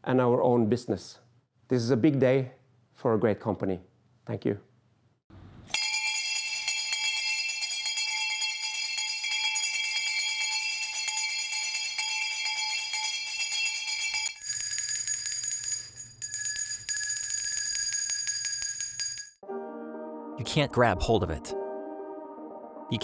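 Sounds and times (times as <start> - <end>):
brass hand bell ringing rapidly: 5.8 - 19.4
higher-pitched hand bell shaken: 5.8 - 19.4.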